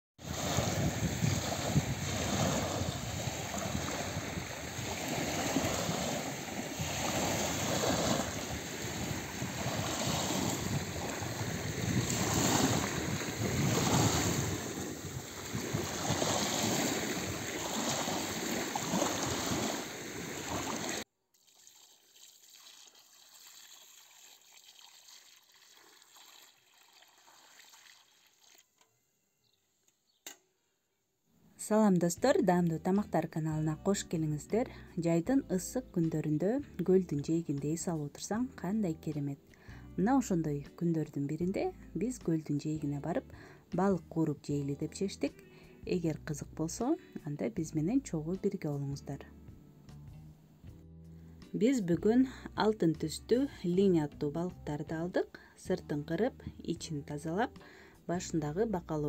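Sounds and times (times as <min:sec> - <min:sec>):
waves lapping on pebble shore: 0:00.2 - 0:21.0.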